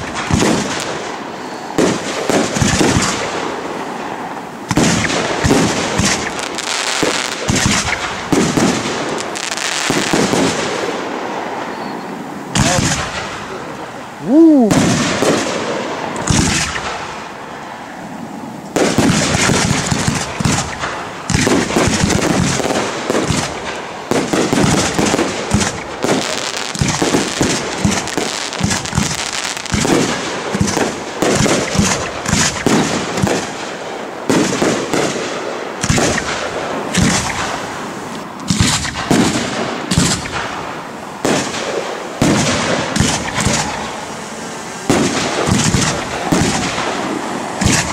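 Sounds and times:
fireworks crackle: 0:00.0 - 0:17.4, 0:18.7 - 0:47.9
firework shell bursts: 0:38.5 - 0:47.9
firework falling whistle: 0:42.2 - 0:47.9.

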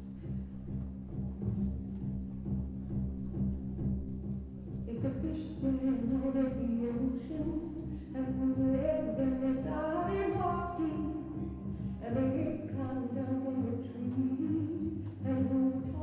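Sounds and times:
instrumental backing music: 0:00.0 - 0:16.0
person singing: 0:04.9 - 0:16.0.

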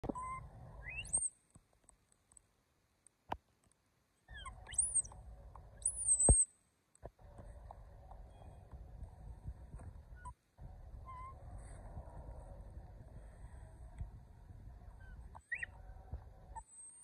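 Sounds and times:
monkeys squeaking: 0:04.3 - 0:05.2, 0:15.0 - 0:15.7.

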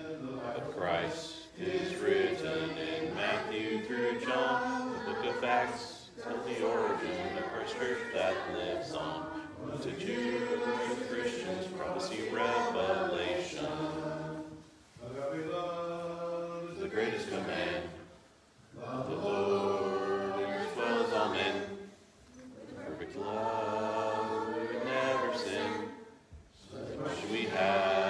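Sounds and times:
group of voices reciting in unison: 0:00.0 - 0:28.0.

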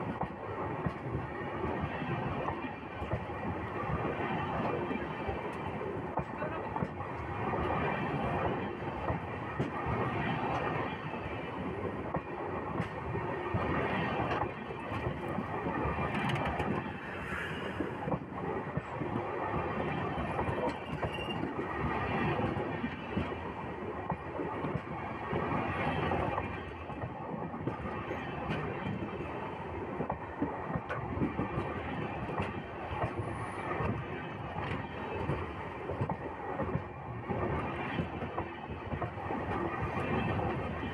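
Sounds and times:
train wheels rumbling on rails: 0:00.0 - 0:40.9
faint wheel squeal: 0:20.8 - 0:21.4.

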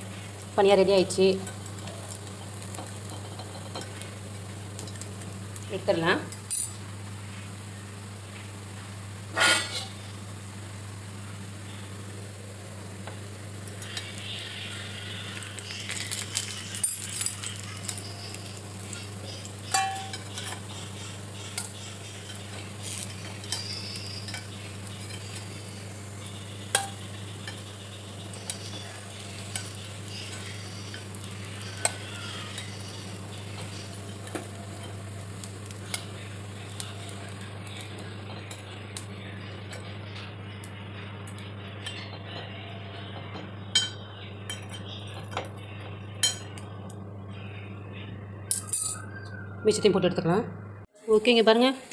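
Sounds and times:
food sizzling in oil: 0:00.0 - 0:40.7, 0:51.0 - 0:51.9
steady low hum: 0:00.0 - 0:51.0
metal spoon scraping and clinking: 0:02.2 - 0:04.1, 0:09.4 - 0:10.0, 0:15.7 - 0:25.5, 0:26.3 - 0:35.2.

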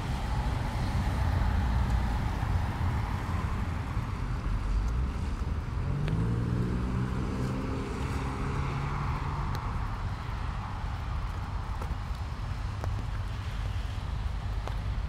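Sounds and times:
hiss of wet street: 0:00.0 - 0:15.0
vehicle engine hum passing: 0:00.0 - 0:15.0
wind rumble on microphone: 0:00.0 - 0:15.0.

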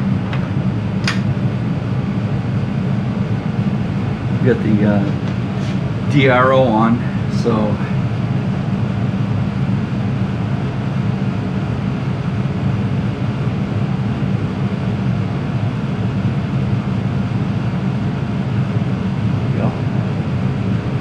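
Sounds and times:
milling machine humming: 0:00.0 - 0:21.0.

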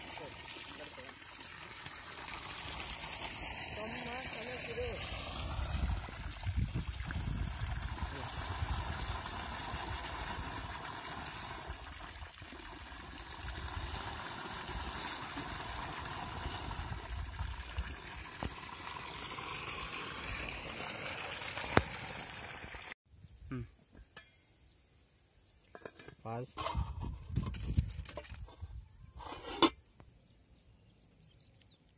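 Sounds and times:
water pouring into plastic bottle: 0:00.0 - 0:23.0.

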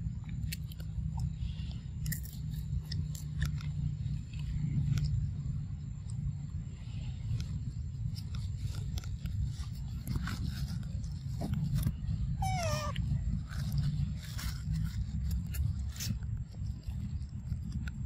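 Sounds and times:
clicks and rustles: 0:00.0 - 0:18.0
steady low rumble: 0:00.0 - 0:18.0
macaque call: 0:12.4 - 0:13.0.

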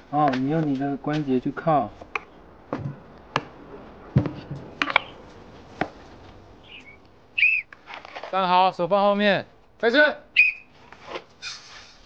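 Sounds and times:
short high squeak: 0:11.4 - 0:12.0.

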